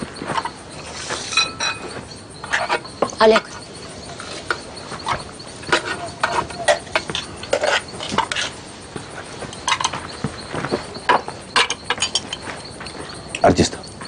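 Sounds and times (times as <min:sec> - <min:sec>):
spoons clinking on metal bowls: 0:00.4 - 0:08.5, 0:09.5 - 0:10.0, 0:11.5 - 0:12.5.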